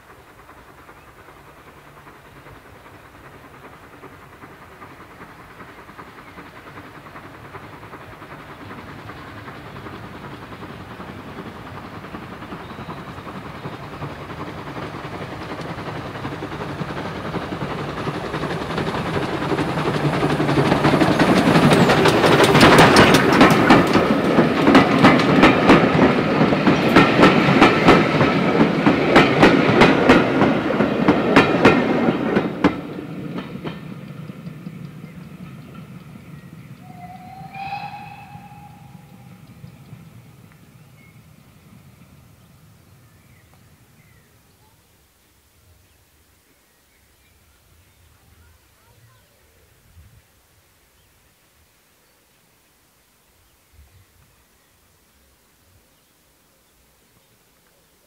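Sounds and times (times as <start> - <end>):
steam train passing: 0.0 - 51.8
wheels clicking over rail joints: 11.1 - 36.7.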